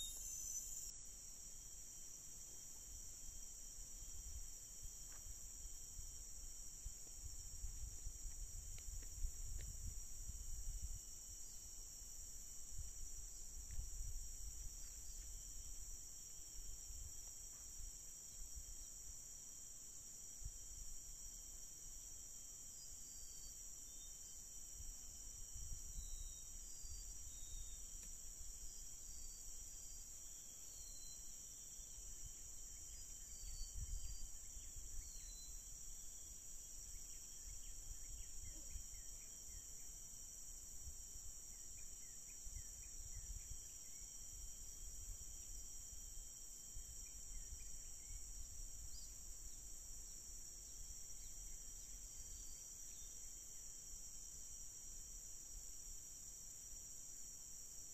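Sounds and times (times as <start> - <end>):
short chirping bird calls: 0.0 - 0.9
high-pitched insect drone: 0.0 - 1.4, 22.6 - 40.4, 50.5 - 53.7.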